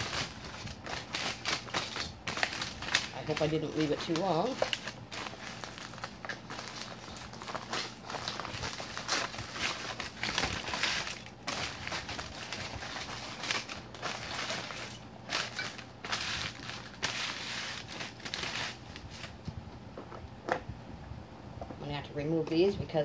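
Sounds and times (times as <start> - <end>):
aluminium foil crinkling: 0.0 - 19.5.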